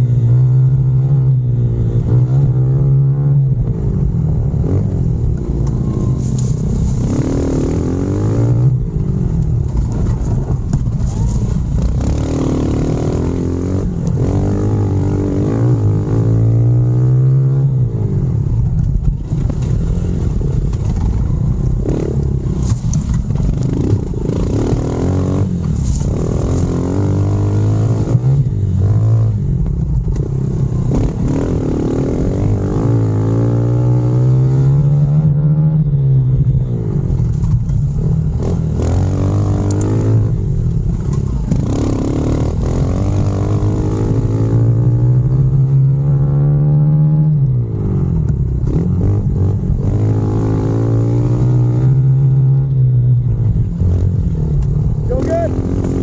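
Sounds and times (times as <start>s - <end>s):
dirt bike engine revving: 11.8s - 17.7s, 23.5s - 29.4s, 41.4s - 47.2s.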